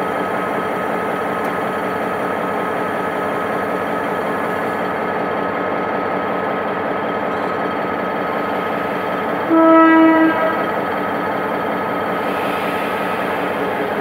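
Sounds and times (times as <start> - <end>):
diesel locomotive idling: 0.0 - 14.0
train horn blast: 9.4 - 10.8.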